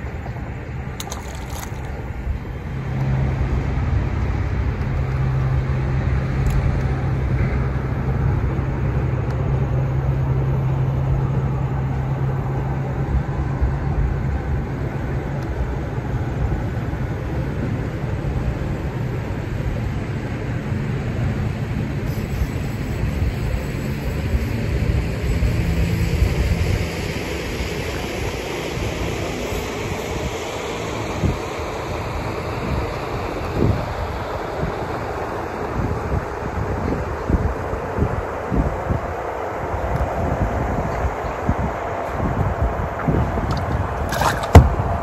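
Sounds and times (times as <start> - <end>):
boat motor running: 42.9 - 45.0.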